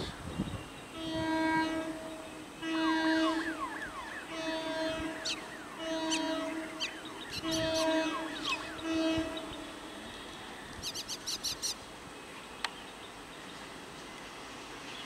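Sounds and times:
approaching train noise: 0.0s - 15.0s
train horn blasts: 0.9s - 10.5s
birds whistling and chirping: 5.2s - 8.8s.

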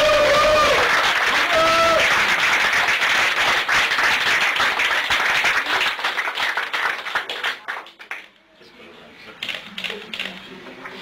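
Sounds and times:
small group applauding: 0.0s - 8.4s.

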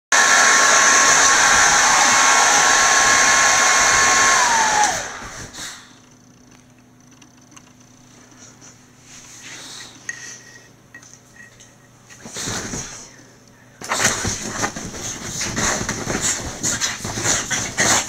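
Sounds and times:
hair dryer whining: 0.1s - 5.8s
rustling on bedsheets: 13.9s - 18.0s.

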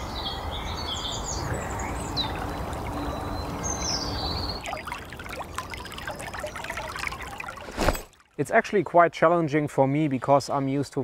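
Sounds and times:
songbirds chirping and trilling: 0.0s - 7.2s
stream trickling: 0.0s - 11.0s.

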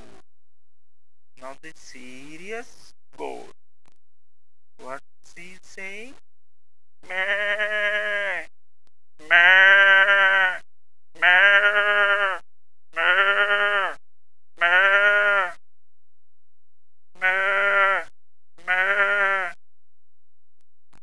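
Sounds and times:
person imitating goat bleating: 7.0s - 8.5s, 9.2s - 10.6s, 11.2s - 12.4s, 13.0s - 14.0s, 14.6s - 15.6s, 17.2s - 19.6s.

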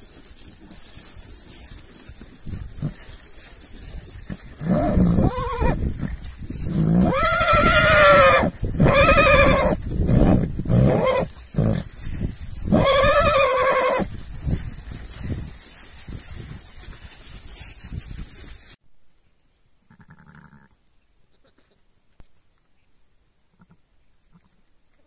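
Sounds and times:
horses whinnying: 4.2s - 11.9s, 12.6s - 14.1s.

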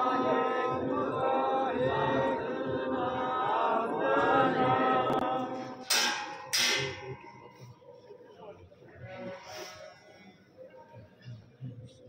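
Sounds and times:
congregation chanting a hymn: 0.0s - 7.6s.

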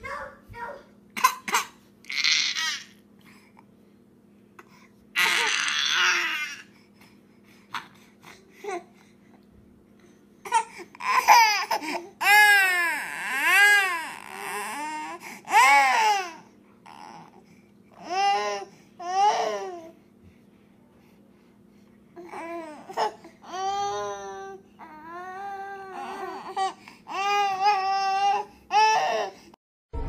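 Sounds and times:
infant crying: 2.1s - 2.9s, 5.2s - 6.7s, 10.5s - 17.4s, 22.2s - 29.5s.

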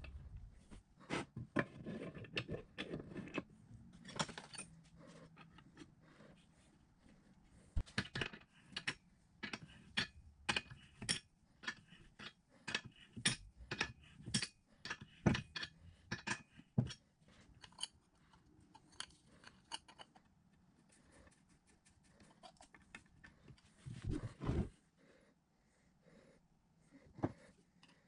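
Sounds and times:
metal tools clicking on metal parts: 7.9s - 17.0s.

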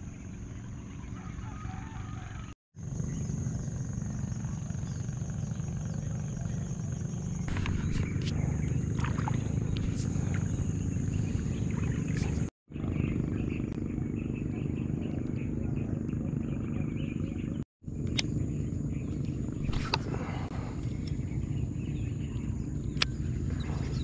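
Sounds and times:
high-pitched insect drone: 2.8s - 12.5s
low rumble: 6.6s - 24.0s.

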